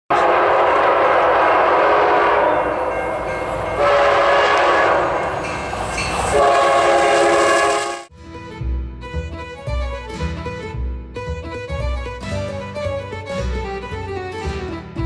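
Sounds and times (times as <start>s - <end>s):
locomotive horns: 0.1s - 8.1s
string music: 0.1s - 15.0s.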